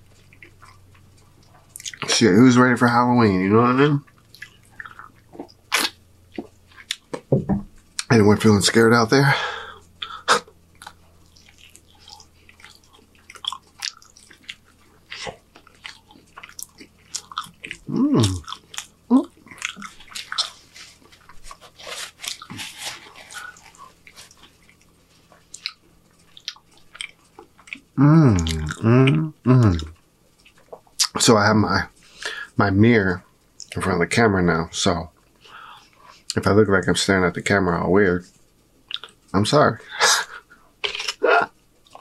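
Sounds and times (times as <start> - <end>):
wet chewing and mouth clicks: 0.1 - 2.2, 4.0 - 8.1, 10.0 - 31.2, 38.8 - 39.3, 40.3 - 42.0
person's short vocal sounds: 17.9 - 18.4, 28.0 - 30.0, 41.2 - 41.5.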